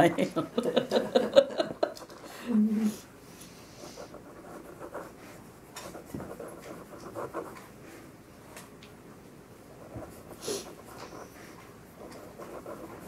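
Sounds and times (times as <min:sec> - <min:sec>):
pencil scratching on paper: 0:03.7 - 0:07.7, 0:09.7 - 0:13.0.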